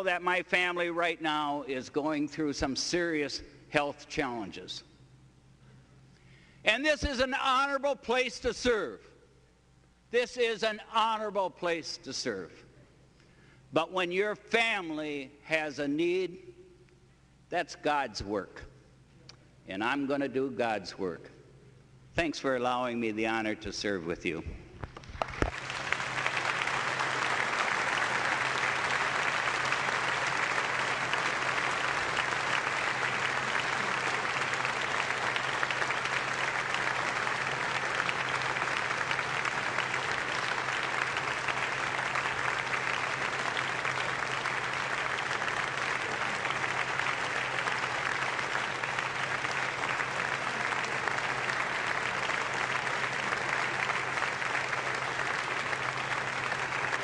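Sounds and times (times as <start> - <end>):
applause from crowd: 24.8 - 57.0.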